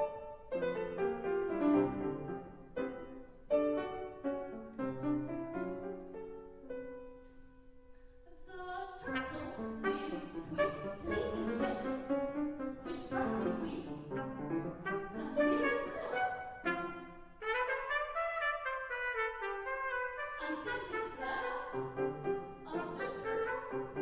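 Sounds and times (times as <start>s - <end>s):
piano: 0.0s - 24.0s
trumpet: 9.0s - 24.0s.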